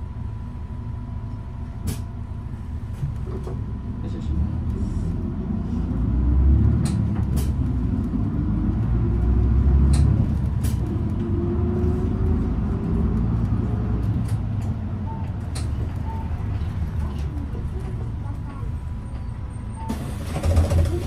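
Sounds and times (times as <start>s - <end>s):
bus engine rumbling: 0.0s - 21.0s.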